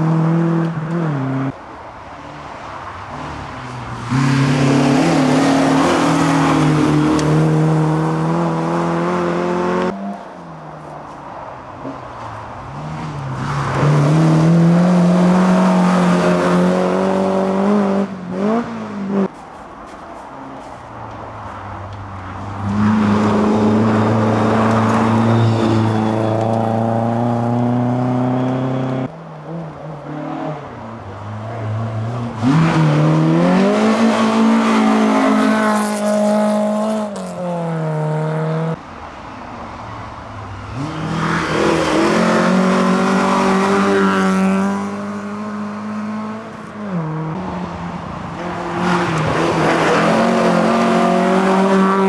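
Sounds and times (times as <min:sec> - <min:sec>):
rally cars revving past: 0:03.3 - 0:10.0, 0:12.8 - 0:19.3, 0:22.5 - 0:30.8, 0:31.6 - 0:38.8, 0:40.7 - 0:47.7, 0:48.4 - 0:52.0.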